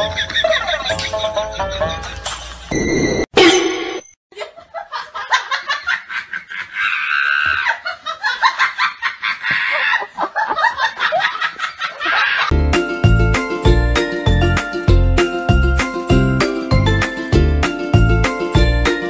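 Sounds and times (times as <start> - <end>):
person laughing: 4.3 - 12.5.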